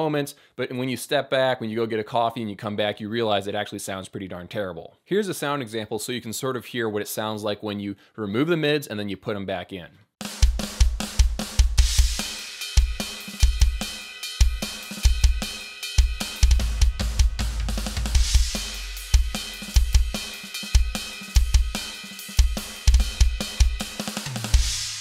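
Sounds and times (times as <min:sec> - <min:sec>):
electronic drum beat: 0:10.2 - 0:25.0
cymbal crashes: 0:24.6 - 0:25.0.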